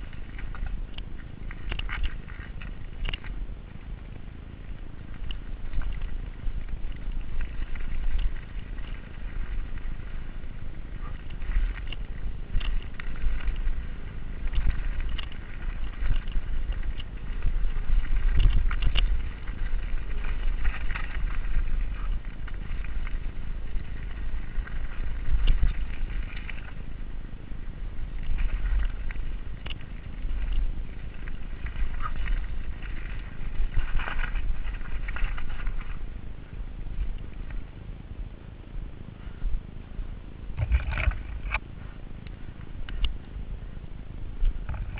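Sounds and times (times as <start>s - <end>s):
wind rumbling on microphone: 0.0s - 44.9s
tyres rolling over dirt and stones: 4.7s - 27.1s, 27.7s - 37.6s
bike clattering and clicking: 11.0s - 23.1s.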